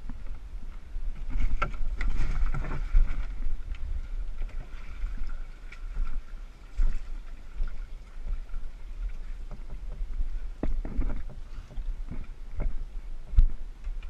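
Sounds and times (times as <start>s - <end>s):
canoe hull knocks and rubs: 1.1s - 3.6s, 6.8s - 13.6s.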